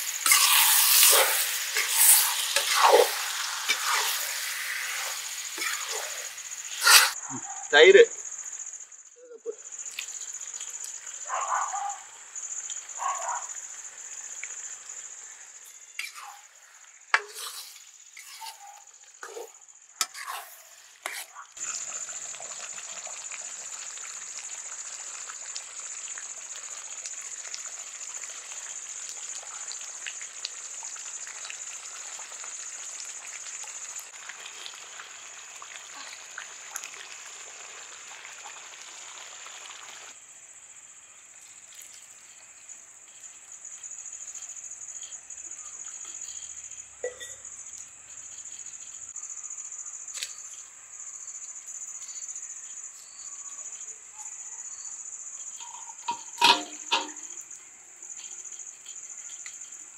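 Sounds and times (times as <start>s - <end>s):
fire popping: 0.0s - 7.3s, 55.4s - 59.9s
gravy bubbling and sizzling: 0.0s - 7.3s, 9.6s - 59.9s
crickets chirping: 0.0s - 59.9s.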